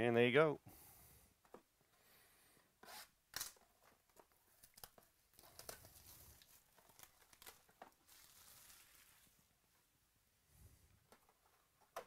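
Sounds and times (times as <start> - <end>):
cardboard tearing and crinkling: 4.6 - 9.3
packaging ripping: 4.6 - 9.3.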